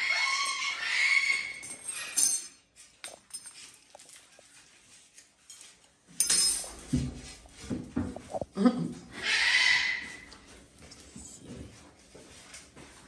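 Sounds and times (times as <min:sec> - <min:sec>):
loud animal call: 0:09.1 - 0:10.3.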